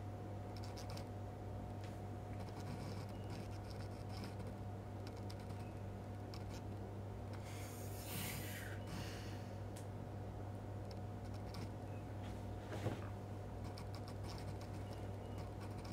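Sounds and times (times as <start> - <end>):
low electrical hum: 0.0 - 15.9
scratching and rubbing clicks: 0.6 - 1.1, 2.3 - 7.4, 10.8 - 11.8, 13.6 - 15.9.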